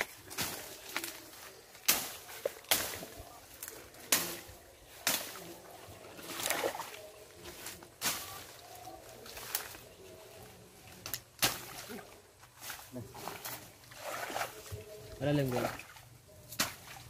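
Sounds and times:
blade swishing through grass: 0.0s - 5.6s, 6.2s - 9.9s, 16.5s - 17.0s
brush rustling: 0.0s - 17.0s.

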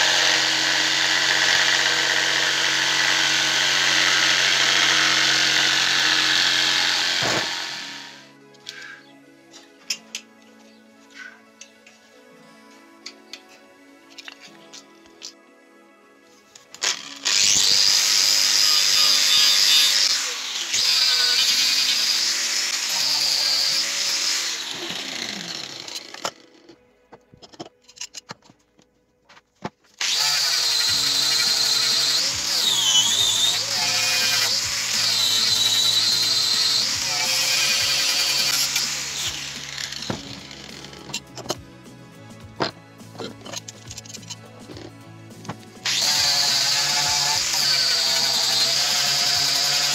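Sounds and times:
angle grinder sanding wood: 17.2s - 26.2s, 30.0s - 41.0s, 45.8s - 49.9s.

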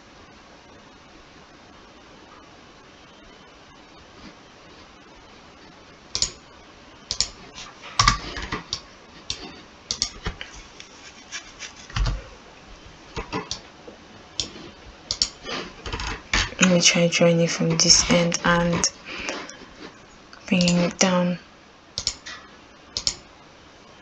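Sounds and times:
keyboard typing clicks: 6.2s - 6.4s, 7.1s - 7.4s, 8.0s - 10.3s, 14.4s - 16.2s, 20.6s - 20.9s, 22.0s - 22.3s, 23.0s - 23.2s.

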